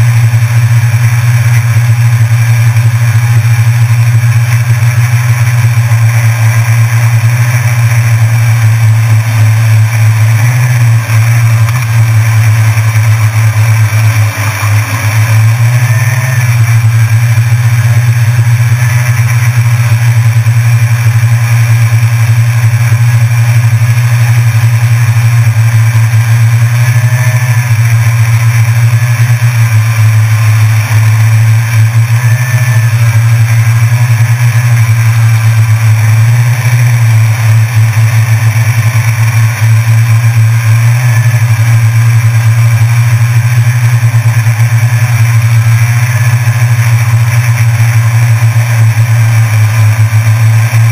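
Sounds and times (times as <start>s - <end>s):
drone propellers buzzing: 0.0s - 50.9s.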